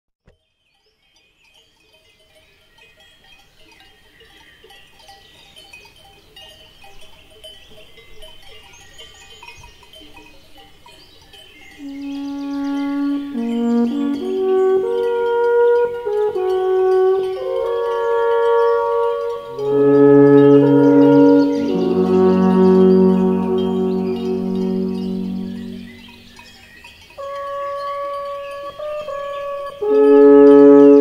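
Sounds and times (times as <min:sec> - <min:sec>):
cowbells clanking: 0:00.4 - 0:31.0
brass horn music: 0:11.8 - 0:26.3, 0:27.2 - 0:31.0.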